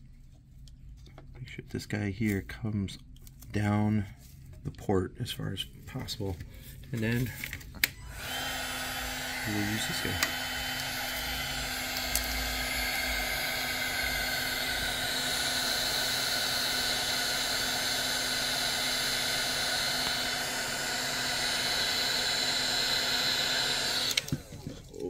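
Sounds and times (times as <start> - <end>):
heat gun fan rushing: 7.0 - 24.8.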